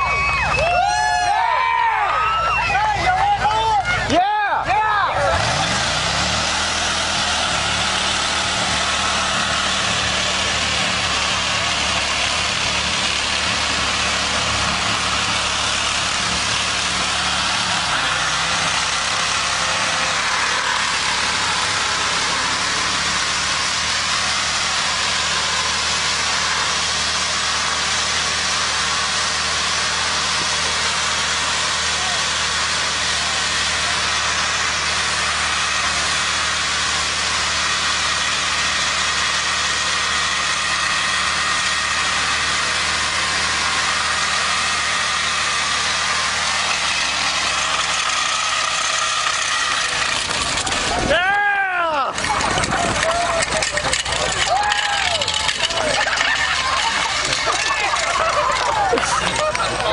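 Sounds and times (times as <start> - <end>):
truck engine running: 0.0 - 59.9
steel rim grinding on pavement: 2.2 - 59.9.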